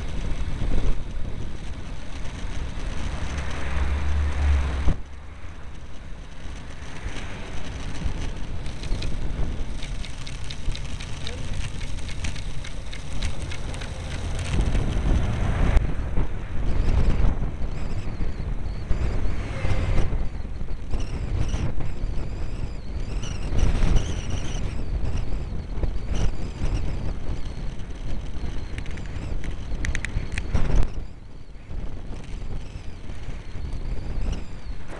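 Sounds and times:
cars passing: 0:00.0 - 0:16.8, 0:18.5 - 0:20.6
wind buffeting microphone: 0:00.0 - 0:34.9.

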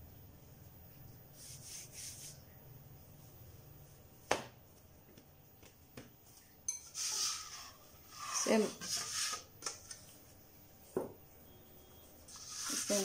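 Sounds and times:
hands patting dough: 0:04.2 - 0:06.3.

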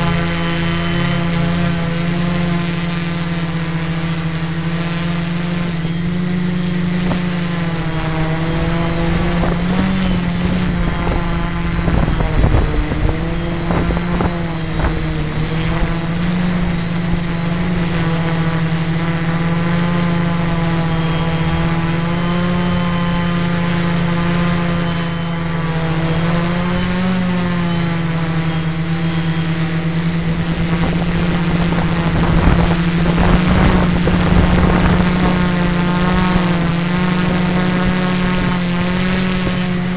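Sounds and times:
drone propellers whining: 0:00.0 - 0:39.9
wind rumble on microphone: 0:05.6 - 0:25.1, 0:29.2 - 0:39.9.

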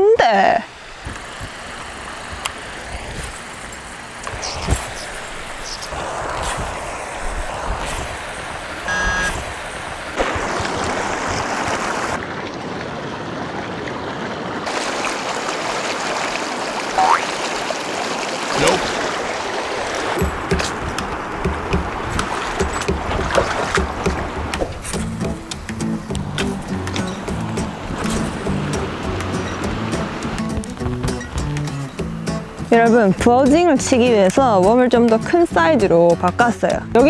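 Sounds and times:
stream water running over stones: 0:00.3 - 0:32.0
knocks and rustles: 0:20.2 - 0:25.7, 0:30.4 - 0:31.7.

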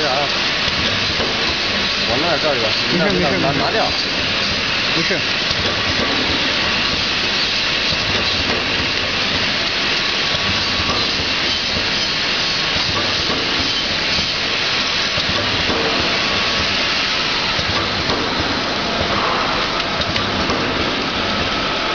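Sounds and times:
machine hiss: 0:00.0 - 0:21.9.

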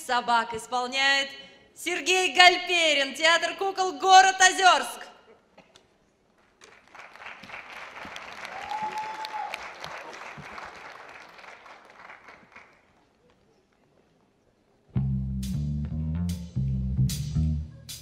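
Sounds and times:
audience applauding: 0:06.6 - 0:13.2.

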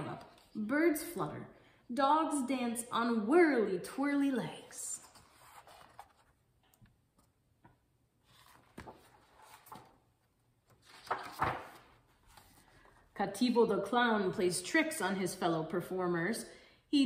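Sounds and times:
page turning swish: 0:05.0 - 0:06.4, 0:08.2 - 0:10.0, 0:10.7 - 0:12.7
paper rustling: 0:05.0 - 0:07.4, 0:08.2 - 0:13.0.

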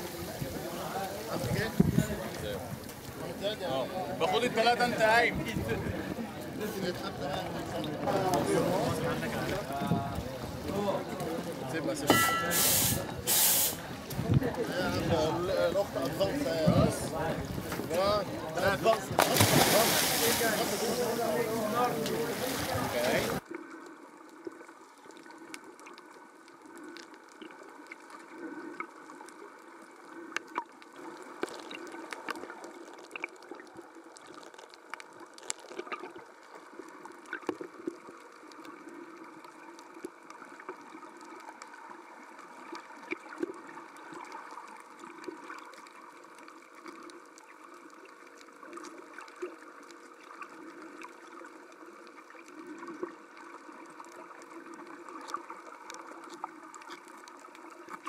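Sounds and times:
watery underwater hiss: 0:12.2 - 0:13.9, 0:19.4 - 0:21.4
sharp clicks and crackles: 0:30.3 - 0:41.7.

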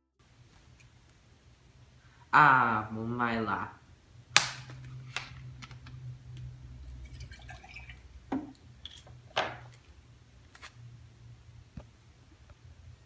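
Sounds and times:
low steady hum: 0:00.2 - 0:13.0.

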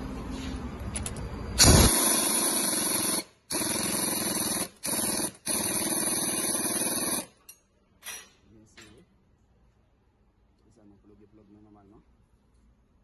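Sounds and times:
loud air hiss: 0:01.6 - 0:02.2.

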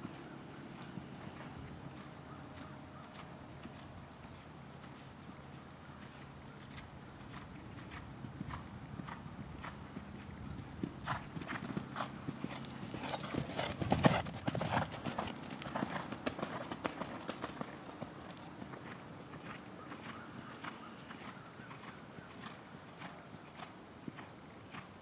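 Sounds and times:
horse hoofbeats cantering on sand: 0:00.0 - 0:25.0.

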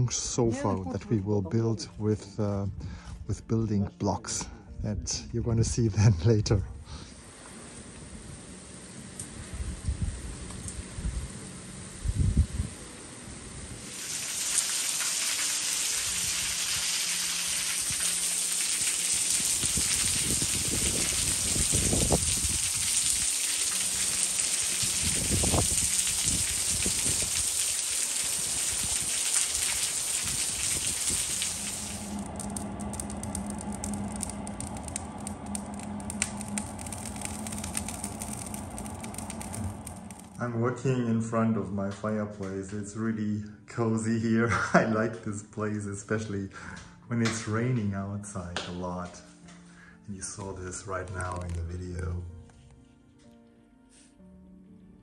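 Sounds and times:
wind rumble on microphone: 0:09.3 - 0:12.8, 0:19.3 - 0:27.6, 0:28.2 - 0:40.4
heavy rain on water and deck: 0:13.8 - 0:40.4
wood fire crackling and popping: 0:13.9 - 0:40.5, 0:51.0 - 0:51.7
low steady hum: 0:15.8 - 0:43.7.

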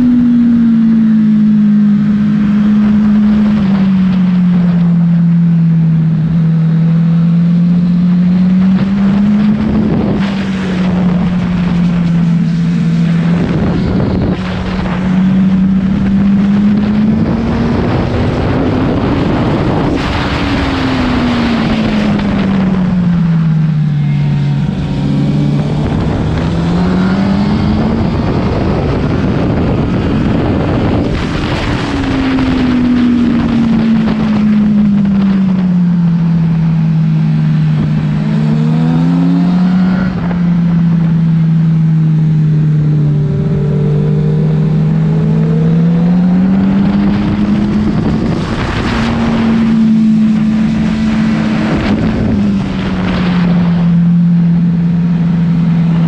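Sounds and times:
motorcycle engine revving: 0:00.0 - 0:56.0
wind rushing: 0:08.3 - 0:35.8, 0:43.3 - 0:55.9.

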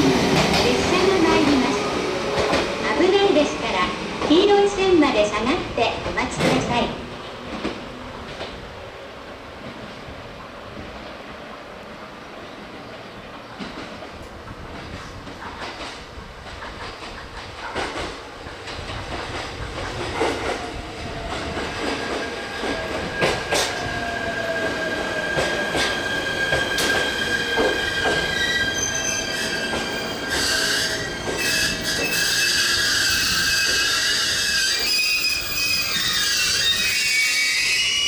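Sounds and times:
high-pitched train wheel squeal: 0:21.8 - 0:38.0.

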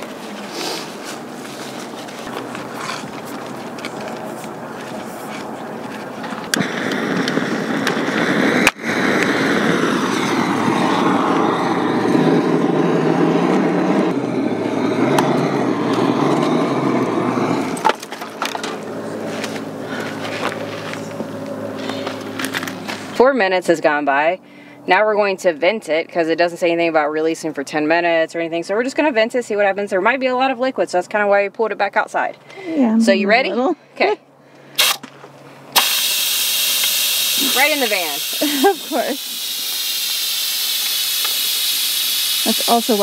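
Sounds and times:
steady rushing noise: 0:00.0 - 0:23.2.

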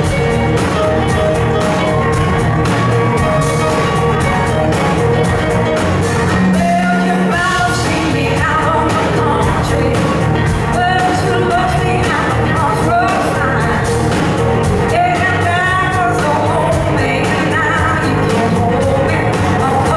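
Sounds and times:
drums and bass: 0:00.0 - 0:19.9
electric guitars: 0:00.0 - 0:19.9
woman singing lead vocal: 0:06.5 - 0:14.0, 0:14.8 - 0:19.9.

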